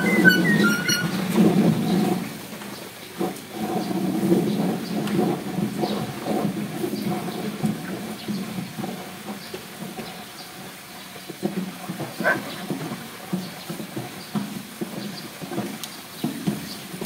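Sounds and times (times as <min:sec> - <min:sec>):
myna bird crackly calls: 0:00.0 - 0:01.3, 0:12.2 - 0:12.6.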